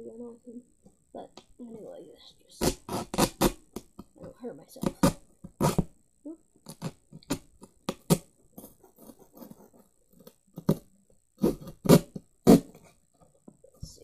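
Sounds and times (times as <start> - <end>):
knife sawing through cardboard: 2.6 - 3.6, 6.7 - 9.8, 11.4 - 12.9.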